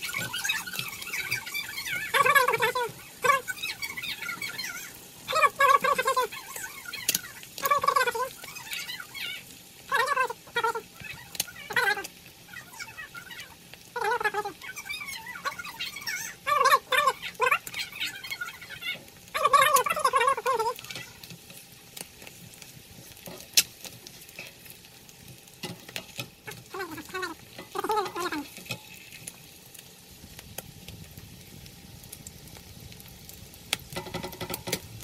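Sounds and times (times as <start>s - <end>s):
spatula scraping and tapping pan: 0.0s - 2.2s, 20.7s - 29.4s, 33.7s - 34.9s
eggs sizzling in oil: 0.0s - 35.0s.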